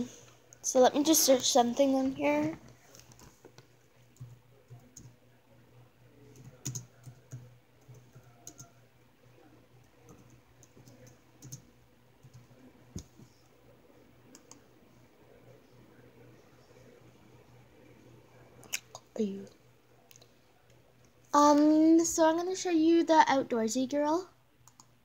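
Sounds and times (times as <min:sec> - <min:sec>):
low steady hum: 0:00.0 - 0:25.0
laptop keyboard typing: 0:02.9 - 0:05.2, 0:06.3 - 0:08.8, 0:09.8 - 0:13.1, 0:14.3 - 0:14.6, 0:24.6 - 0:24.9.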